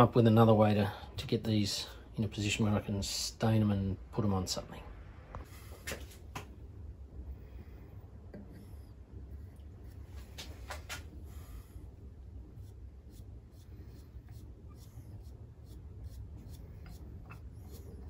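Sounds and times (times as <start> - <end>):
low steady hum: 0.0 - 18.0
paintbrush brushing on wood: 12.2 - 18.0.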